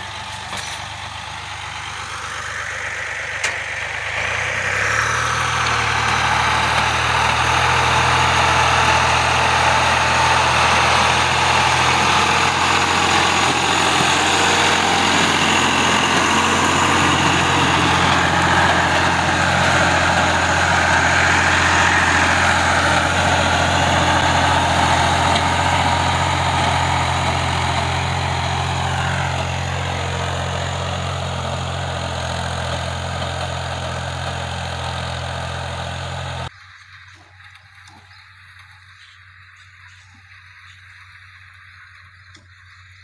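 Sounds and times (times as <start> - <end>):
tractor diesel engine running: 0.0 - 43.0
hoe scraping dry soil: 4.2 - 36.5.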